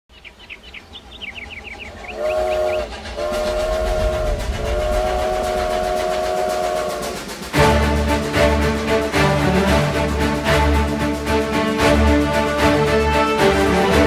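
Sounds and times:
low train rumble: 0.1 - 14.0
steam locomotive chime whistle: 1.8 - 8.0.

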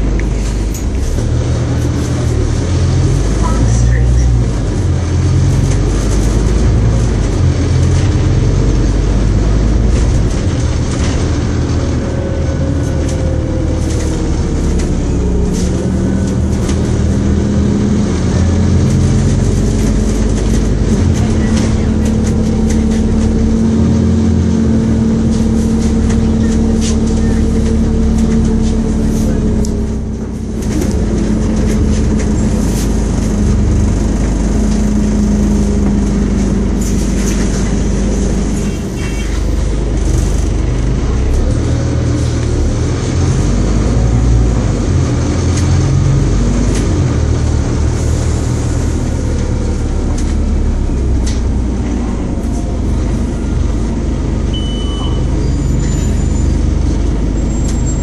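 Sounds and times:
bus body rattles: 0.0 - 58.0
bus engine and road noise: 0.0 - 58.0
stop-request beep: 54.6 - 55.3.

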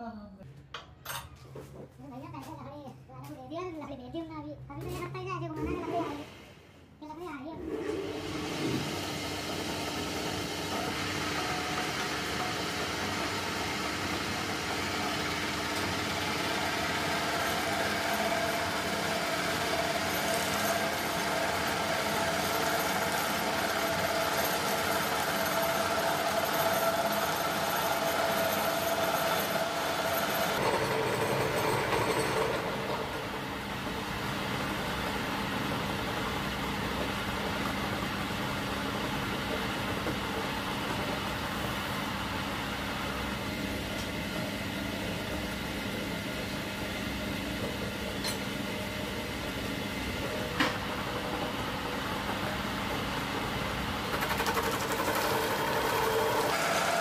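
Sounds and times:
cutter boring wood: 7.7 - 33.1, 54.1 - 57.0
wood lathe belts humming: 7.8 - 33.6, 54.1 - 57.0.

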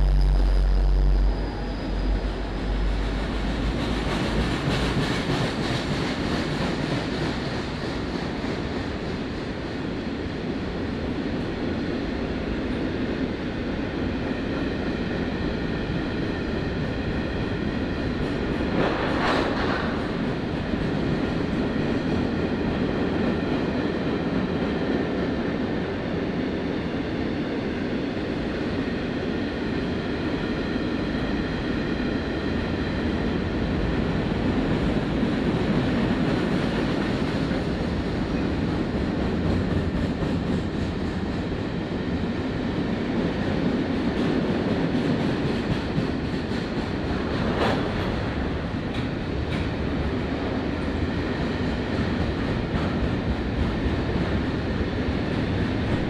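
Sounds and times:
faint high ringing tone: 0.0 - 3.0
steel wheels rumbling on rail: 0.0 - 56.0.

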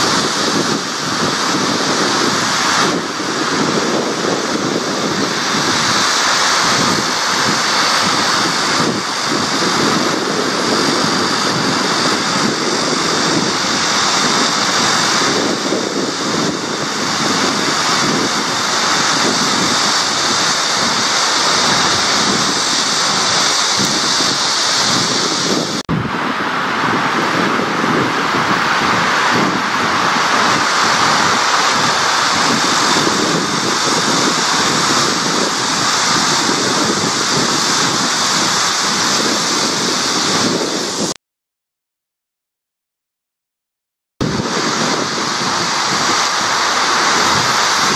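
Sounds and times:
waves lapping on shore: 0.0 - 41.2, 44.2 - 47.9
wind rushing: 0.0 - 41.2, 44.2 - 47.9.

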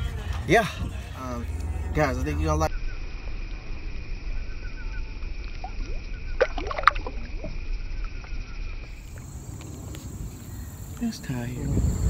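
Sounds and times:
water splashing: 5.2 - 9.4.

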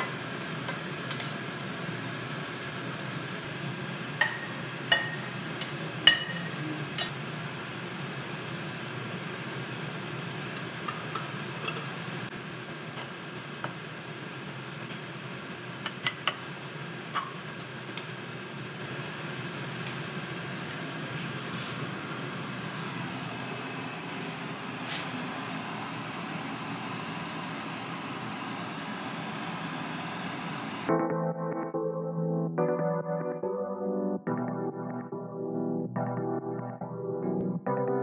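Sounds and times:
spoon clinking against bowl: 6.1 - 7.2.

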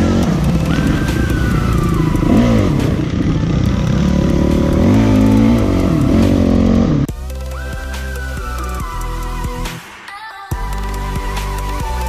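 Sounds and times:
dirt bike engines revving: 0.0 - 9.4.

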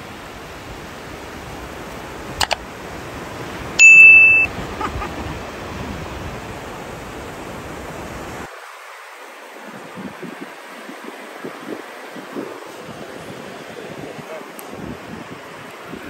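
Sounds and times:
surf hissing: 0.0 - 16.0
notification ding: 3.8 - 4.5.

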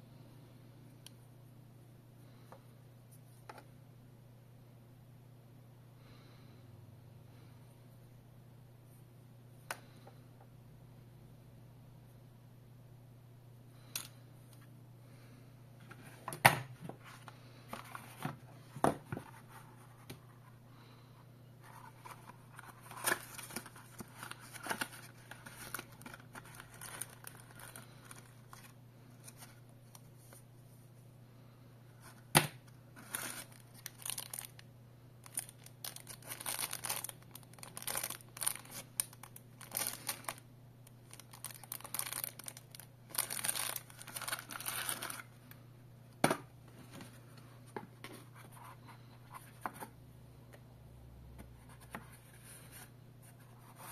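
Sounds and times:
cardboard and plastic rustling: 21.6 - 29.6, 41.0 - 45.3.

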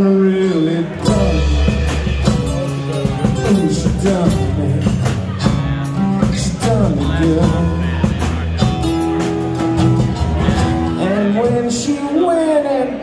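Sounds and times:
electric bass: 0.0 - 12.0
person singing: 0.0 - 13.0
drum kit: 0.9 - 12.0
strummed acoustic guitar: 1.0 - 11.8.

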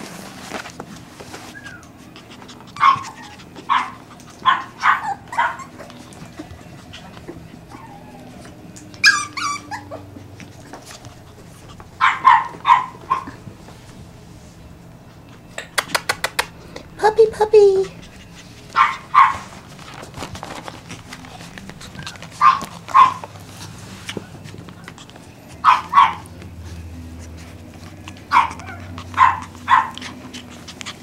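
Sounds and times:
puppies yapping: 1.2 - 13.8, 17.8 - 31.0
puppy high-pitched yelp: 2.7 - 6.4, 7.7 - 10.2, 12.0 - 13.4, 18.7 - 19.6, 22.0 - 23.3, 25.6 - 26.3, 28.3 - 30.4.

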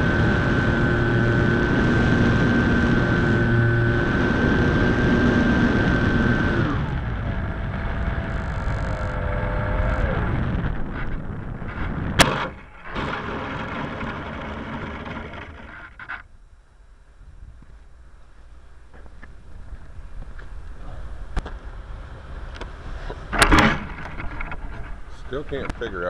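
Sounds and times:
electric motor and propeller whine: 0.0 - 16.3
faint rattles: 8.2 - 16.3, 23.3 - 26.0.

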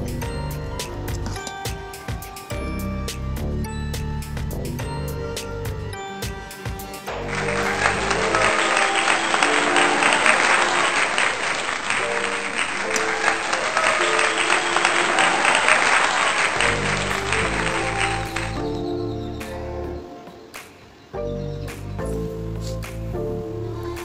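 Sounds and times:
background music: 0.0 - 24.0
applause: 7.1 - 18.8.

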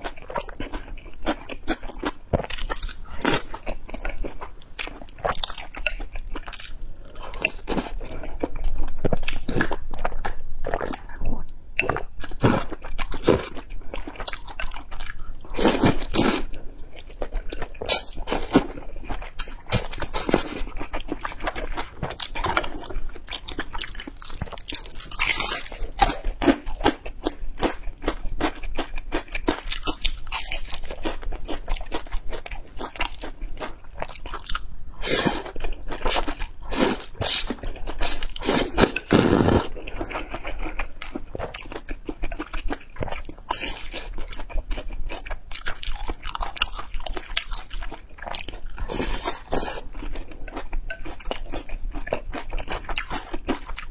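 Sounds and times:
wet chewing and smacking: 0.0 - 34.7, 35.4 - 53.9
noodles slurped from bowl: 36.8 - 39.7.

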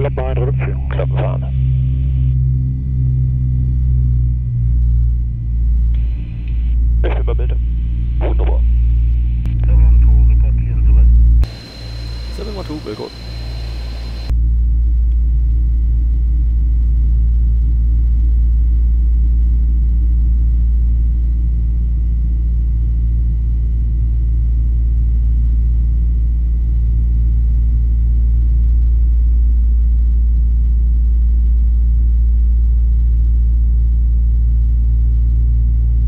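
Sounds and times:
faint high whine: 0.0 - 14.4
turboprop engines droning: 0.0 - 36.0.

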